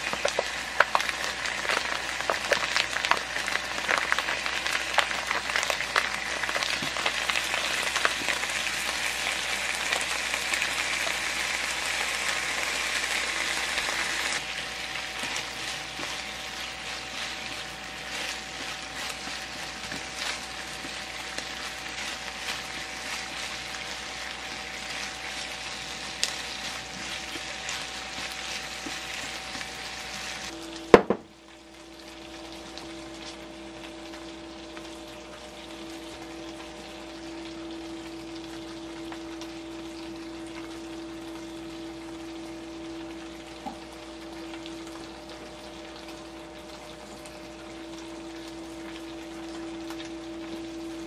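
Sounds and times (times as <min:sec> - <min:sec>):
chicken sizzling in a frying pan: 0:00.0 - 0:51.0
chopsticks stirring: 0:14.6 - 0:30.6.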